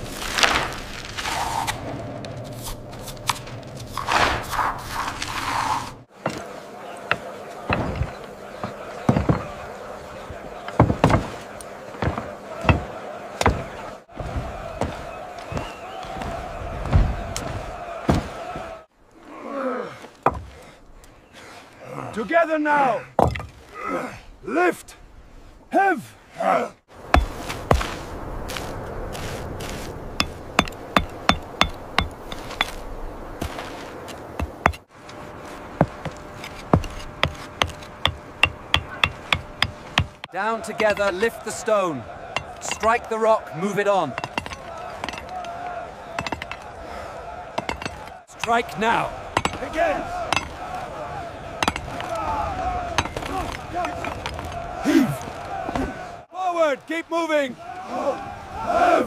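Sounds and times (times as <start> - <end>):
steady background noise: 1.8 - 19.1, 26.9 - 59.0
hammers striking stone: 7.1 - 9.4, 12.0 - 13.6, 20.2 - 20.5, 27.1 - 27.4, 30.2 - 32.8, 34.4 - 34.9, 35.8 - 41.3, 42.3 - 43.0, 44.1 - 45.6, 46.2 - 46.6, 47.6 - 50.6, 51.6 - 52.2, 53.0 - 54.6
mallet striking chisel into stone: 30.2 - 32.8, 36.0 - 40.3, 44.2 - 45.3, 46.2 - 46.6, 47.6 - 48.0, 49.4 - 49.6, 50.3 - 50.5, 51.6 - 52.0.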